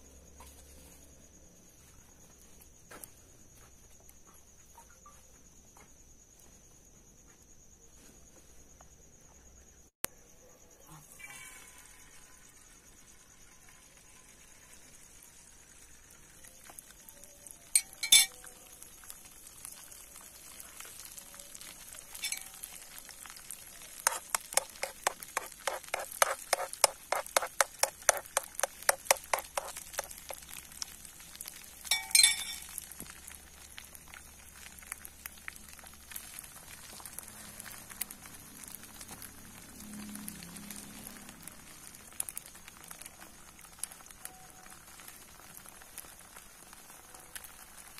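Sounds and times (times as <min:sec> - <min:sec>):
egg sizzling in a pan: 0:11.1 - 0:47.9
light clinks against a pan: 0:17.8 - 0:18.4, 0:31.8 - 0:32.8.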